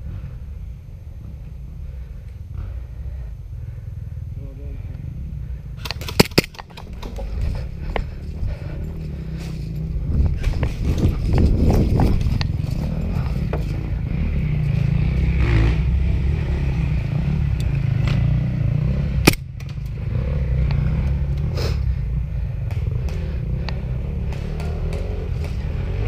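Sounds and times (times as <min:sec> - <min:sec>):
sharp snap: 0:05.8 - 0:06.9, 0:19.2 - 0:19.8
camera handling rumble: 0:05.8 - 0:13.9.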